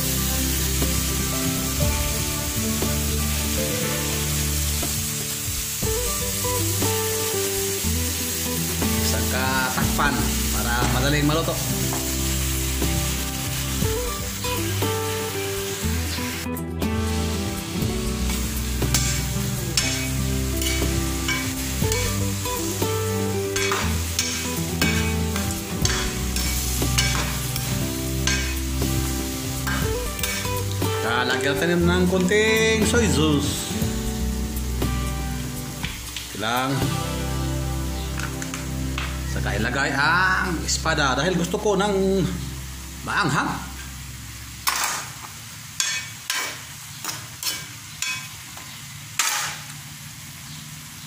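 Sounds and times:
background music: 0.0s - 44.8s
food sizzling: 0.0s - 51.0s
metal spoon scraping a wok: 18.9s - 22.0s, 45.8s - 48.4s.

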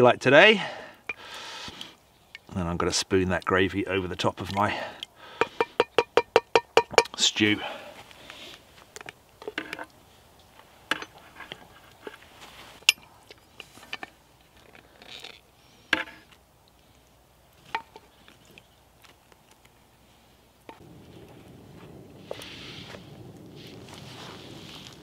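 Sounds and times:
wooden spoon knocking on metal: 5.5s - 7.2s.

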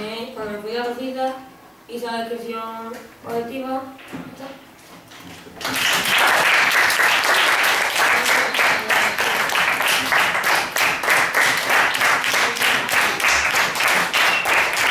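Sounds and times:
children clapping: 5.6s - 14.9s.

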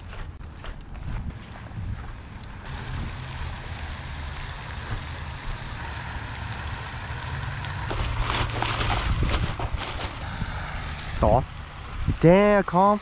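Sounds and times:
fountain spray splashing: 2.7s - 8.5s, 10.2s - 13.0s.

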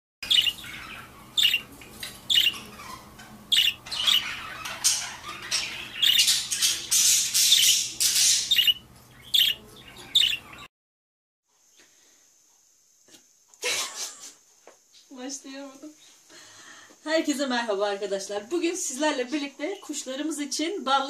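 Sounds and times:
budgerigars squawking: 0.2s - 10.7s.

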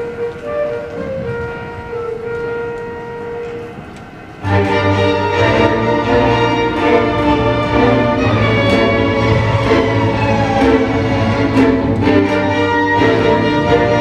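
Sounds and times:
orchestra playing: 0.0s - 14.0s
bowed strings: 4.4s - 14.0s
low bass notes: 4.4s - 14.0s.

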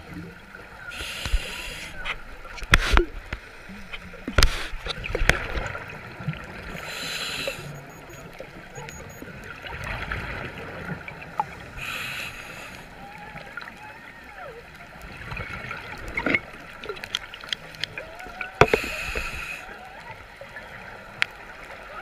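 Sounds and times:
underwater hiss: 0.9s - 2.0s, 6.8s - 7.8s, 11.6s - 13.0s, 18.6s - 19.7s.

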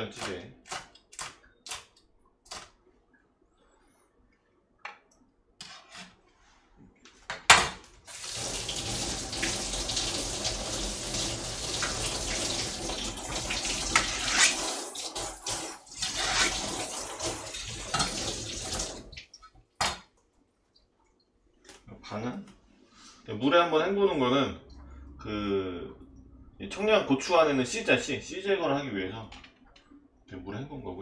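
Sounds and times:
faucet running into sink: 8.1s - 19.3s.

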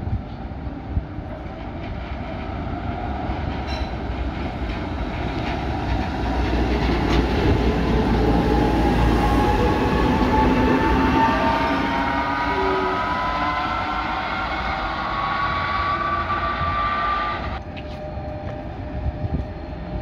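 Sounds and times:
tram rumbling on rails: 0.0s - 20.0s
tram whine rising in pitch: 5.0s - 20.0s.

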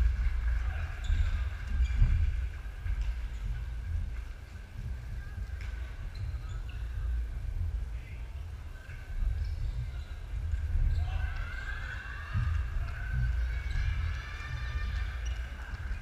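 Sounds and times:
sport shoes squeaking: 0.8s - 2.3s, 2.9s - 4.0s, 5.6s - 7.2s
steady low rumble: 1.5s - 11.0s.

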